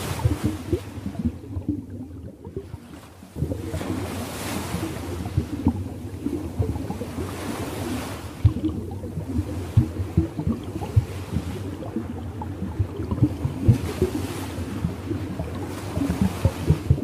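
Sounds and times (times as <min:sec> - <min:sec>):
low rumble of water: 0:00.0 - 0:17.0
ocean waves washing: 0:00.0 - 0:17.0.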